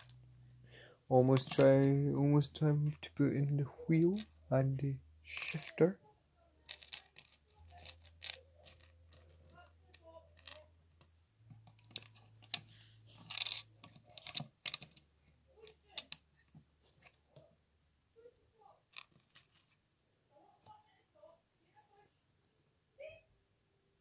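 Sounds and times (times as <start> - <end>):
plastic bricks clicking: 11.7 - 16.2.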